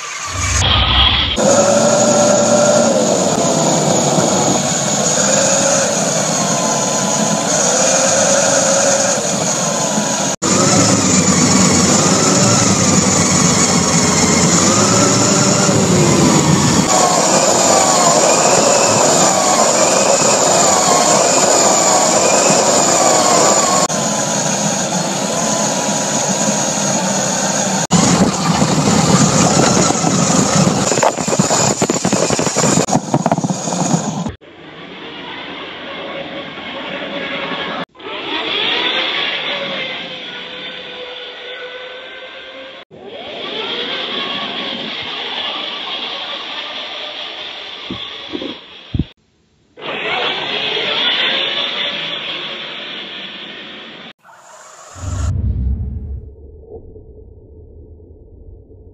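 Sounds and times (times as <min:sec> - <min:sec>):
electric motors whining: 0:00.1 - 0:30.7.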